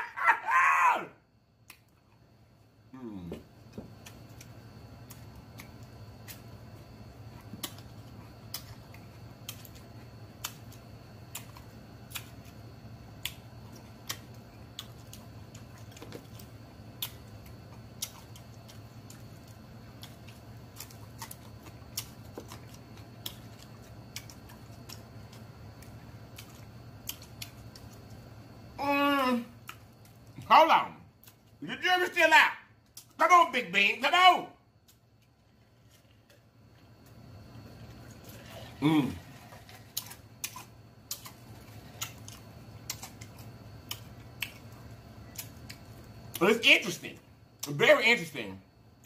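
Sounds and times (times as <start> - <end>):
steady low hum: 0.0 - 49.0
chewing with mouth clicks: 3.9 - 28.4, 29.6 - 30.5, 34.8 - 46.4.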